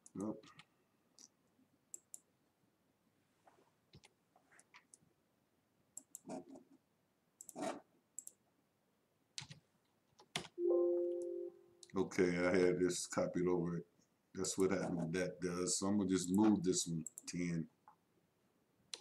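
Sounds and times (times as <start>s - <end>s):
computer mouse clicks: 1.9s - 2.3s, 6.0s - 6.4s, 7.4s - 8.4s, 9.4s - 9.6s, 16.2s - 17.4s
computer alert chime: 10.6s - 11.8s.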